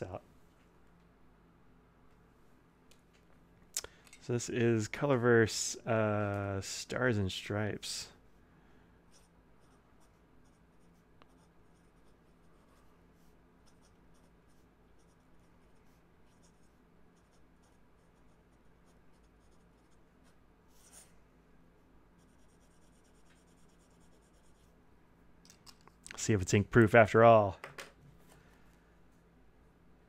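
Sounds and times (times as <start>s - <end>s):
fountain pen scratching on paper: 9.2s - 12.8s.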